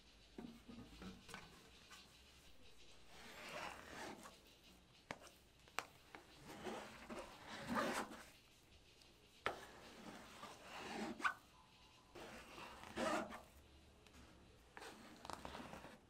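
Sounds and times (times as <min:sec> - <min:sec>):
dough rubbing and scraping: 0:00.0 - 0:16.0.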